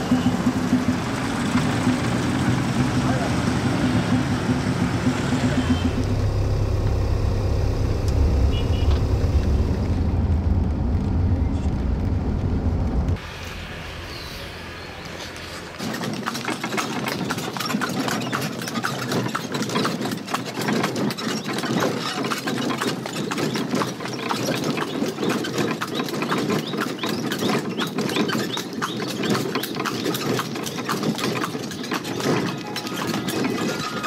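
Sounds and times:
engine running: 0.0s - 17.9s
horse hooves clip-clopping: 15.0s - 34.0s.

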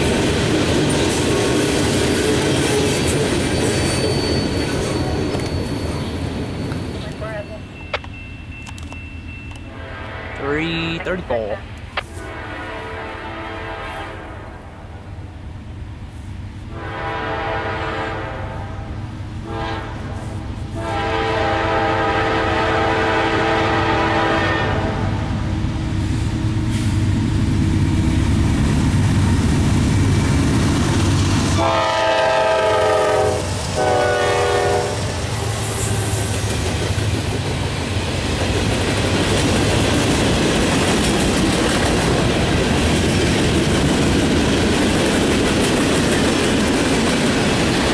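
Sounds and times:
train horn blasts: 9.7s - 10.6s, 12.0s - 14.9s, 16.7s - 25.3s, 31.6s - 35.9s
diesel locomotive rumble: 18.5s - 47.9s.

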